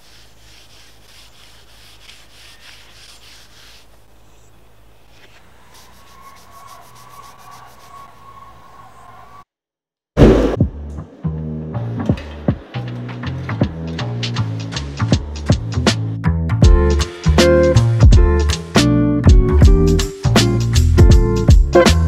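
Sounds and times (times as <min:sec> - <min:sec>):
cloth rubbing on steel: 0:00.0 - 0:04.1, 0:05.2 - 0:08.1.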